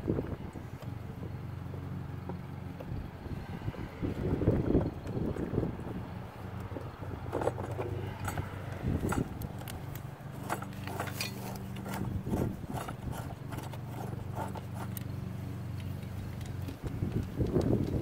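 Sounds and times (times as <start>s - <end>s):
steady low hum: 0.0s - 18.0s
metal scraping on threads: 7.2s - 15.0s.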